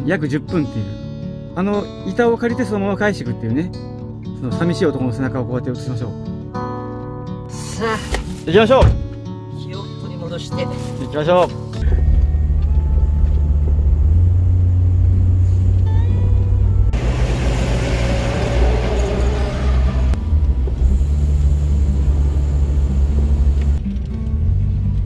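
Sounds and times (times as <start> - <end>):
engine and road rumble: 10.8 - 25.0
rushing noise: 16.5 - 23.8.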